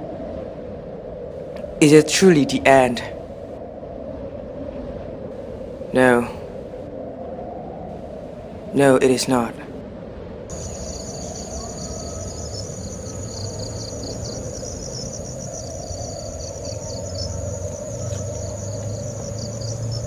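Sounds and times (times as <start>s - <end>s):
low background rumble: 9.5s - 20.0s
insects chirping: 10.5s - 20.0s.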